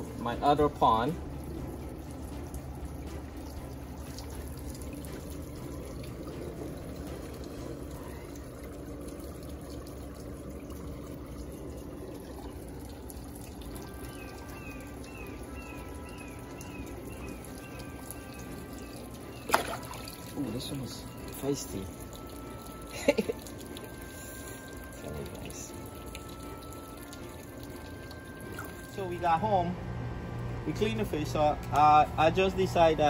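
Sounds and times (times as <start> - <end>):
pond water trickling and lapping: 0.0 - 33.0
hand splashing in water: 19.5 - 20.4.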